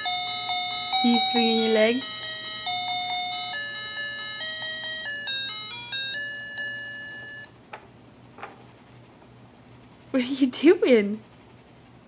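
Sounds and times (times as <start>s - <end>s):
electronic toy melody: 0.0s - 7.5s.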